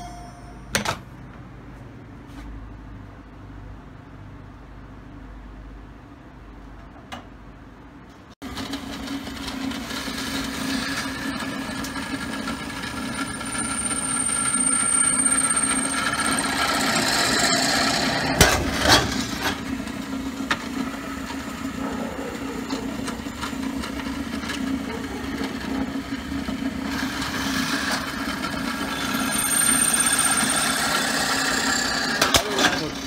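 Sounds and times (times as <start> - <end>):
drill press motor hum: 8.5 - 32.4
high squeal of drilling metal: 10.6 - 18.4, 27.0 - 32.3.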